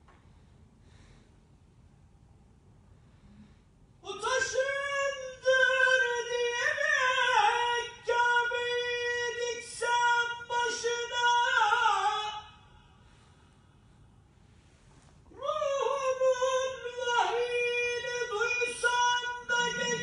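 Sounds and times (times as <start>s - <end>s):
man chanting: 4.0s - 13.0s, 15.3s - 20.0s.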